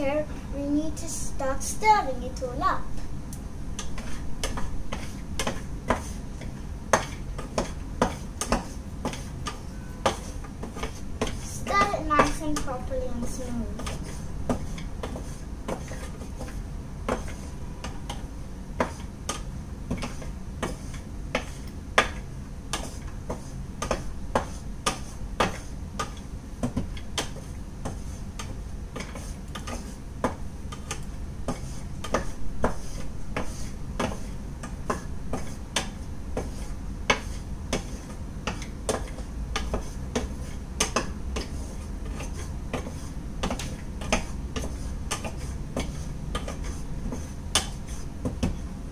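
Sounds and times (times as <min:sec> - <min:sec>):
steady low hum: 0:00.0 - 0:48.9.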